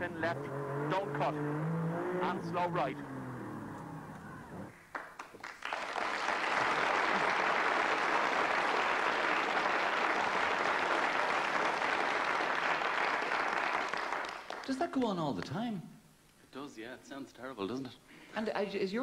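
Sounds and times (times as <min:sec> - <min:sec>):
audience applauding: 0:04.7 - 0:15.0.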